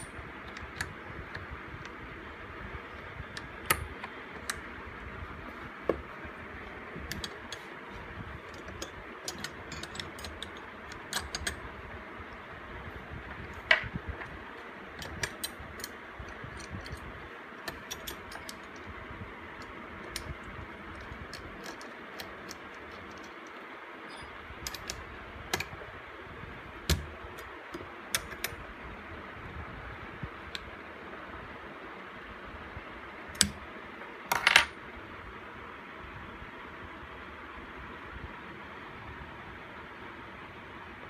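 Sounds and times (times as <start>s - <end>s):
small metal parts clicking: 8.4s - 11.6s, 13.4s - 19.0s, 19.6s - 25.8s.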